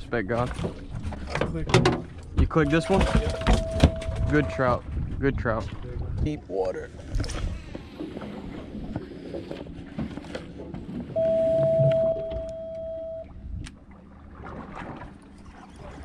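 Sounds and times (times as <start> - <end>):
boat rumble: 0.0 - 16.0
high electronic beep: 2.6 - 4.6, 11.2 - 13.3.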